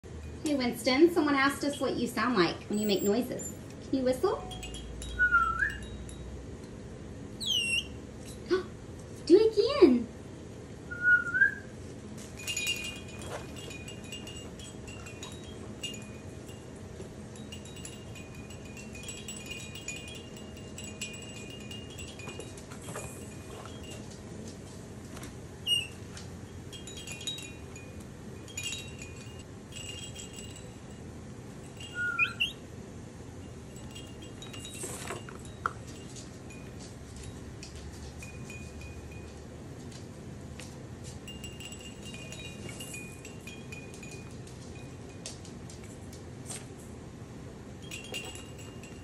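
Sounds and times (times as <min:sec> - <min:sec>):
faint steady hum: 0:00.0 - 0:49.0
soft chime-like tinkling: 0:02.7 - 0:06.8, 0:12.2 - 0:24.6, 0:25.7 - 0:39.6, 0:41.0 - 0:46.0, 0:47.8 - 0:49.0
baby monkey chirping: 0:07.4 - 0:08.0, 0:31.9 - 0:32.6.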